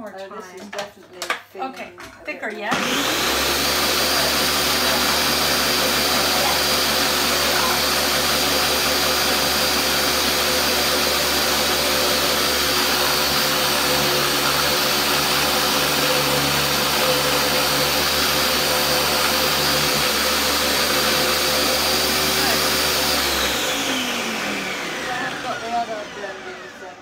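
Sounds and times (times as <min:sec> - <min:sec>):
blender grinding: 0:02.6 - 0:27.0.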